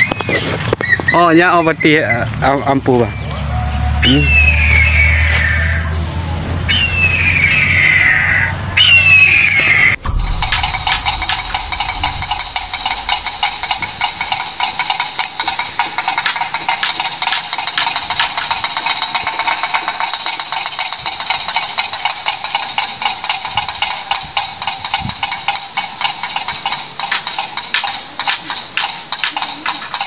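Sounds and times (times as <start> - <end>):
windmill clapper clacking: 10.1 - 30.0.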